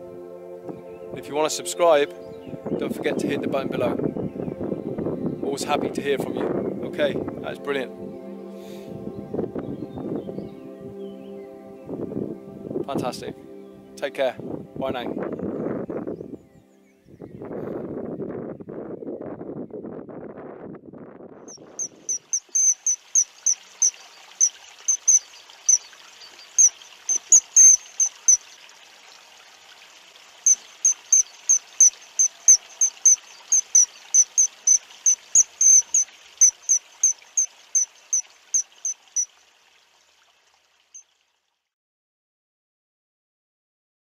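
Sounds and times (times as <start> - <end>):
wind buffeting microphone: 2.2 - 7.6, 8.9 - 11.0, 14.4 - 22.7
short high-pitched chirps: 21.5 - 25.8, 26.6 - 28.4, 30.5 - 39.3
faint high hiss: 21.7 - 39.5.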